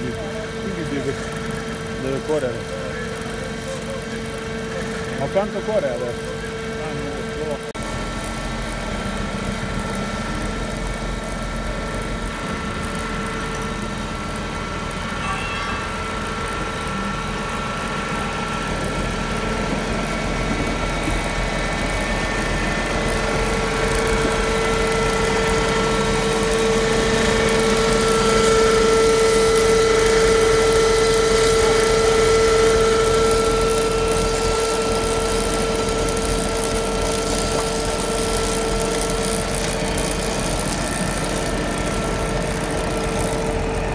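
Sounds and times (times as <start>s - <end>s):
chain saw cutting ground: 19.6s - 43.9s.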